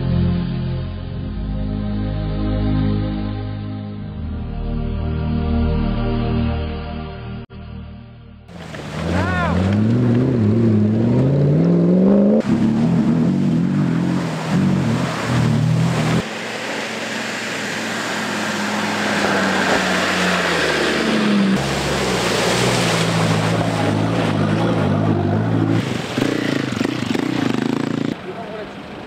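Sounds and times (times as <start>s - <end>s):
water spray rushing: 8.5s - 28.1s
truck engines revving: 8.5s - 29.0s.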